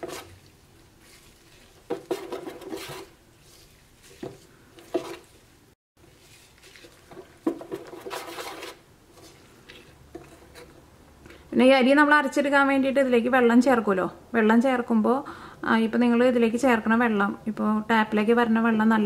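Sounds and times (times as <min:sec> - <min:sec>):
spoon scraping batter in bowl: 0:00.0 - 0:10.9.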